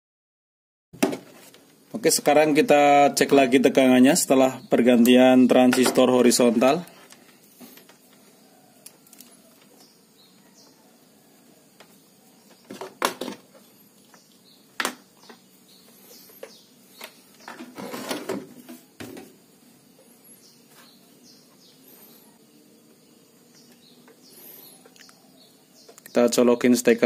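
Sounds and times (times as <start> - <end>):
faint bird chirps: 8.2 - 12.8, 23.5 - 26.8.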